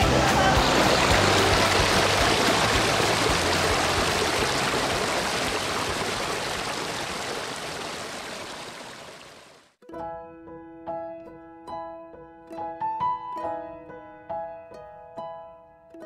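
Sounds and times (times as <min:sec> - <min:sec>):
water rushing over rocks: 0:00.0 - 0:09.7.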